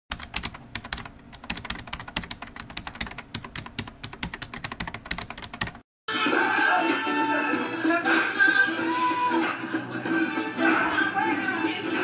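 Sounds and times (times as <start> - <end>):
keyboard typing: 0.1 - 5.8.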